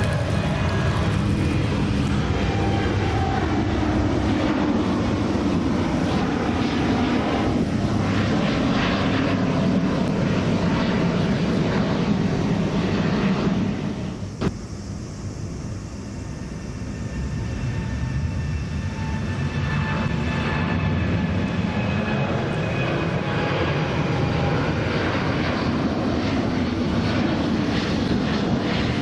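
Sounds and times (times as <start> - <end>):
jet engines roaring overhead: 0.0 - 29.0.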